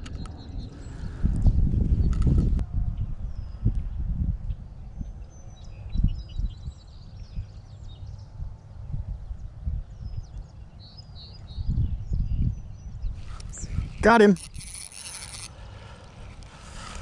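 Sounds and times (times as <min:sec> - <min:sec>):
low rumbles on microphone: 0:00.0 - 0:07.6.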